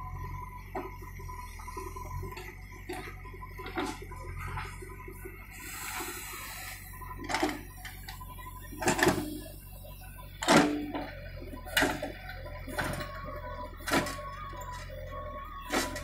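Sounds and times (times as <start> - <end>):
diesel engine running: 0.0 - 16.0
bucket clanking and scraping earth: 15.6 - 16.0.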